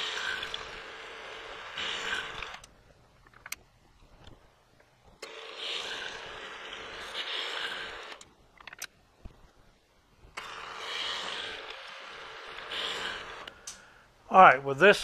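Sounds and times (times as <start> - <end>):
milling machine running: 0.0 - 2.7, 5.2 - 8.2.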